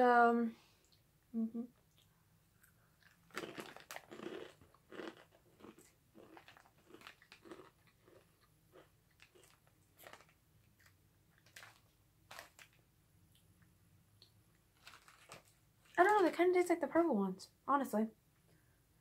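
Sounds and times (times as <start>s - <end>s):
crunchy chewing of chips: 2.0s - 13.4s, 14.2s - 16.0s
chips crunching when bitten: 3.0s - 12.8s, 14.8s - 15.5s.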